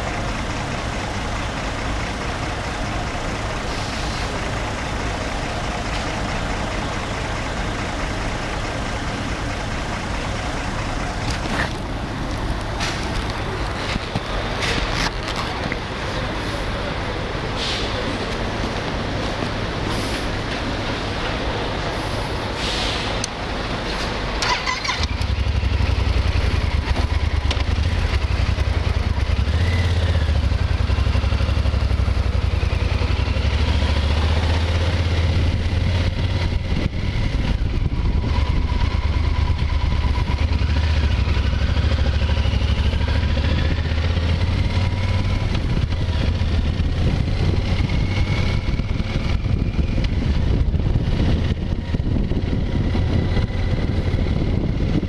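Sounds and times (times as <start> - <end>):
motorcycle engine running: 24.2 - 55.0.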